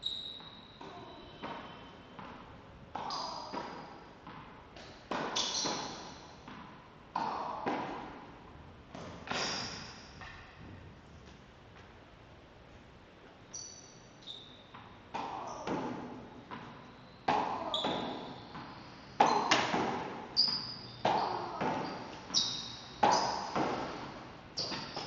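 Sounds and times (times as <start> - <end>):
racket hitting tennis ball: 0.8 - 8.3, 8.9 - 10.5, 14.8 - 25.0
short high-pitched squeaks: 13.5 - 14.7, 21.9 - 23.5.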